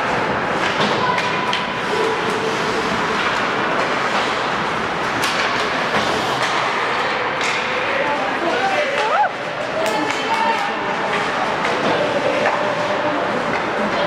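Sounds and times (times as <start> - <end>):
skates scraping on ice: 0.1 - 7.6.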